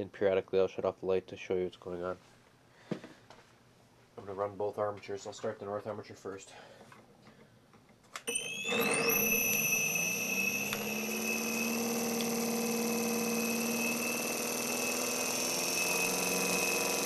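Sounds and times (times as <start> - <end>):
armature spinning up whine: 8.3 - 17.0.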